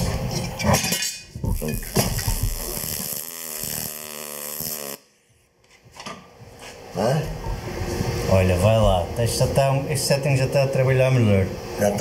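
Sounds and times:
bench shear cutting sheet steel: 0.0s - 5.0s
welder arc crackling and hissing: 1.5s - 5.1s.

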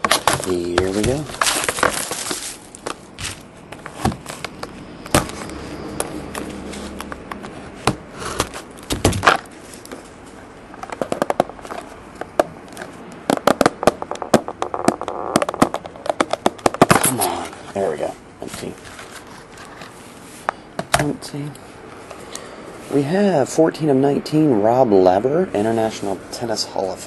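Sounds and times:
cardboard and wrapper crackling: 0.0s - 5.6s.

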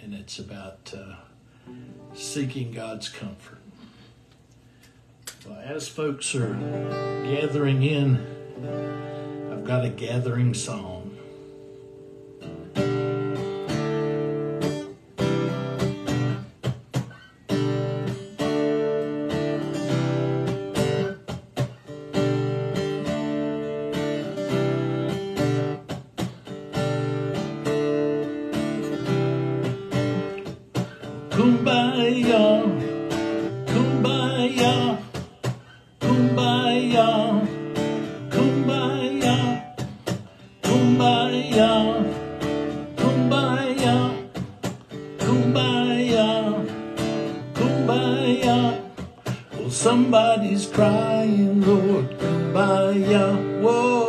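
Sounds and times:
acoustic guitar strumming: 0.0s - 4.1s, 4.7s - 54.0s
man singing: 5.5s - 8.5s, 9.5s - 11.2s, 31.0s - 54.0s.

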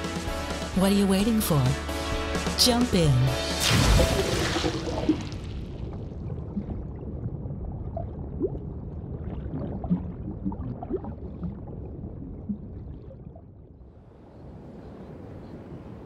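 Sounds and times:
rising bubble chirps: 3.8s - 13.5s
underwater rumble: 3.8s - 16.0s
bubble blips: 7.9s - 13.4s.

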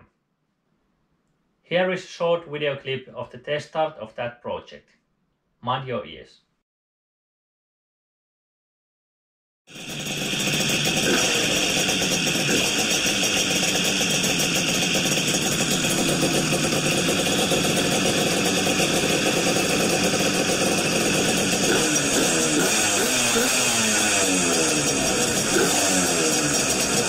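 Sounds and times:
outboard engine revving: 9.7s - 27.0s.

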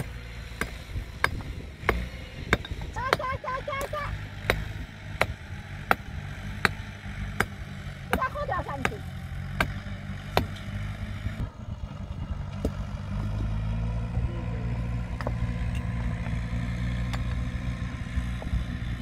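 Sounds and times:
sharp knocks: 0.0s - 6.8s
tractor diesel engine running: 0.0s - 19.0s.

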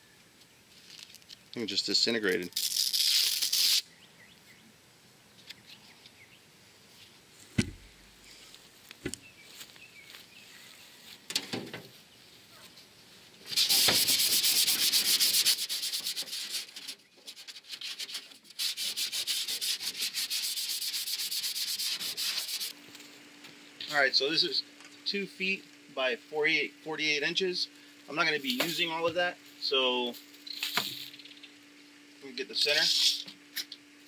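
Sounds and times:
hand sanding aluminum: 13.5s - 22.8s.

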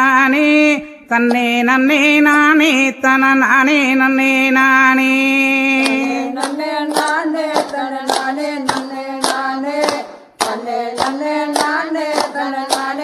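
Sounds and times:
sharp clapped beats: 5.8s - 13.0s.

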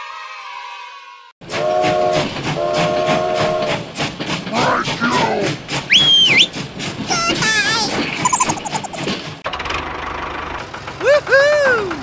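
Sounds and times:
train whistle blasts: 1.5s - 3.8s
toy steam train chugging: 1.5s - 9.3s.

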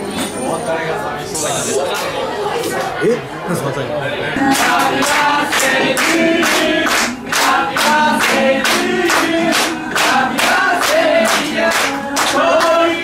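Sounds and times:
group singing birthday song: 4.2s - 13.0s
people clapping in time: 4.4s - 13.0s.

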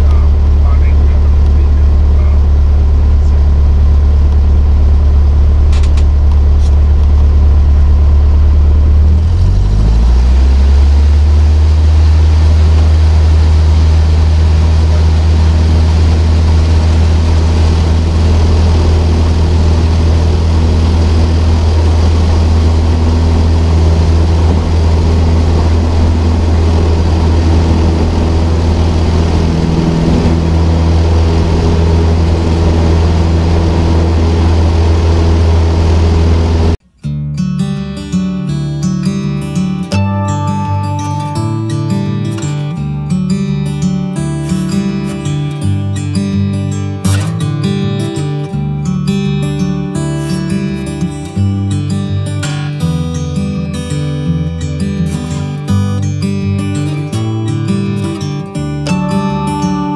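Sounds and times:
light aircraft engine and propeller: 0.0s - 36.8s.

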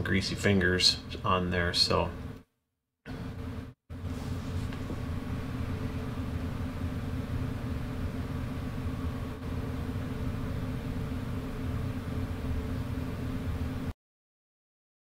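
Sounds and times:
low machine hum: 3.1s - 14.0s.

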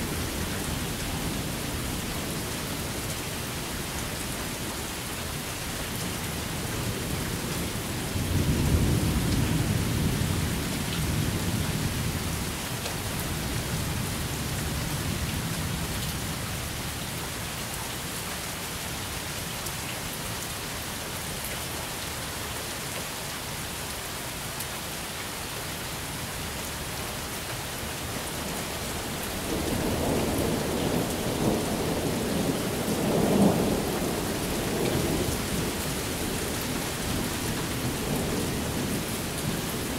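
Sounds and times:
steady rain: 0.0s - 39.9s
thunder rumbling: 28.9s - 39.9s.

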